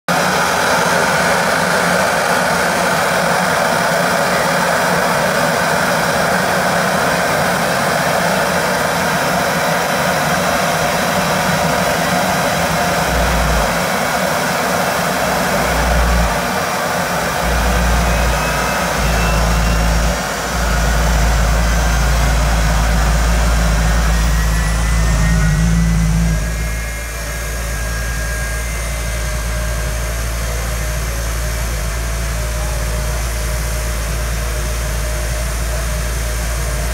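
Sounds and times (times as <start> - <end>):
jet engine roaring with whine: 0.1 - 36.9
deep rumble: 17.3 - 36.0.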